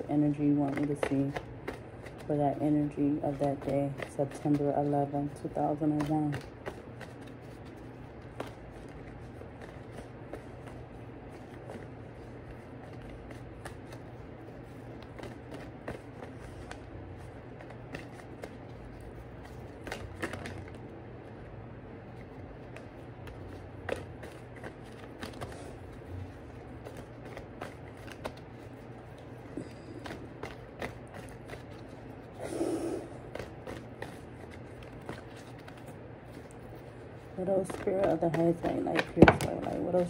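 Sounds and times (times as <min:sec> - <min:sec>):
cards being shuffled: 0:00.0 - 0:21.4, 0:22.0 - 0:40.0
low steady hum: 0:00.0 - 0:40.0.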